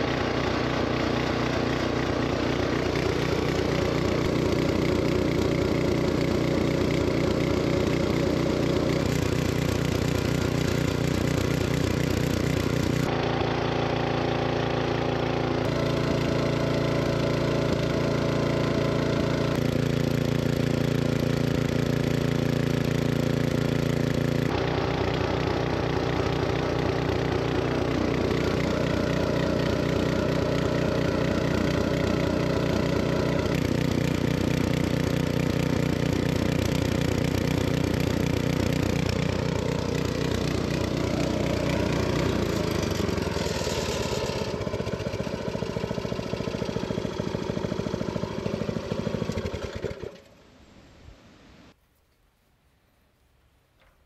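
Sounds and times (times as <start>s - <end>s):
small engine running: 0.0s - 50.5s.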